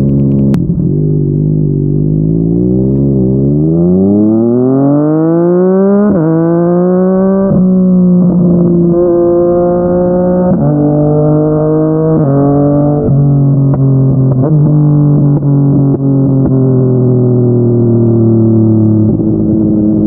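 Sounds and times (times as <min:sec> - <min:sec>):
motorcycle engine accelerating: 0:00.0 - 0:20.0.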